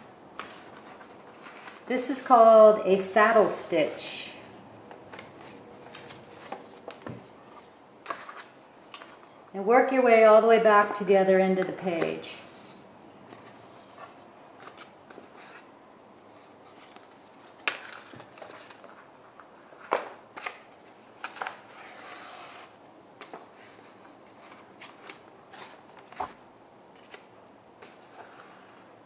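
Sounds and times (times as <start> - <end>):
paper rustling and crinkling: 0.4 - 2.0, 5.0 - 9.3, 12.0 - 28.9.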